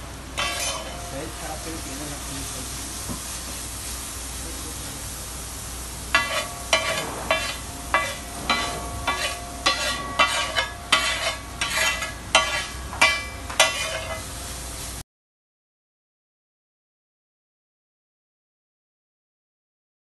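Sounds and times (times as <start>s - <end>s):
rice sizzling: 0.0s - 15.0s
metal spatula striking griddle: 0.4s - 2.4s, 6.1s - 14.3s.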